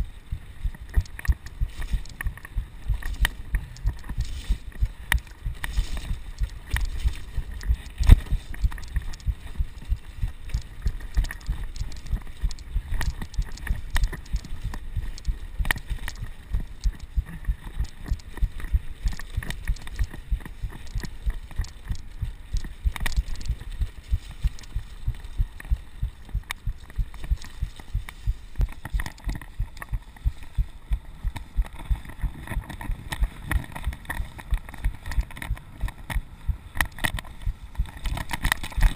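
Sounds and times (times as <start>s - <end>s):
rapid low thumps: 0.0s - 28.8s
wind and tyre rumble: 0.0s - 38.9s.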